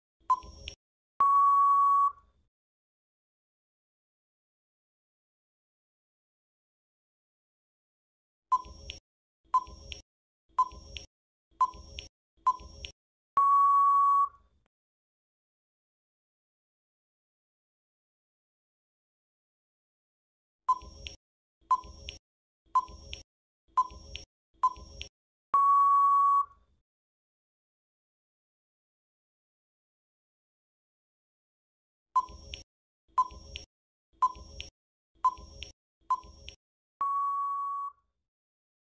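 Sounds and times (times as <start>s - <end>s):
short timer beeps: 0.2s - 2.2s, 8.5s - 9.0s, 9.6s - 10.0s, 10.6s - 14.4s, 20.7s - 22.2s, 22.8s - 26.6s, 32.2s - 38.0s
long steady beep: 0.3s - 2.2s, 13.4s - 14.4s, 25.6s - 26.6s, 37.0s - 38.0s.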